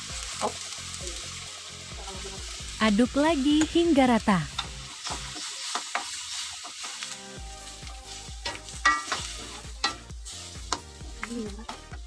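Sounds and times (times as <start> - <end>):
soft sizzle: 0.0 - 12.0
metal spatula scraping wok: 4.5 - 12.0.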